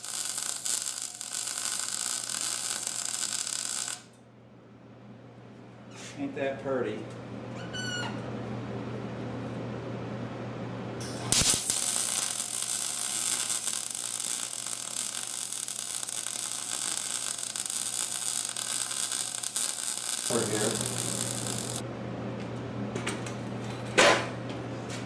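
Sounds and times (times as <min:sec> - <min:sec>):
welding arc crackling: 0:00.0 - 0:04.1, 0:11.0 - 0:21.8
welder electrical hum: 0:00.0 - 0:25.0.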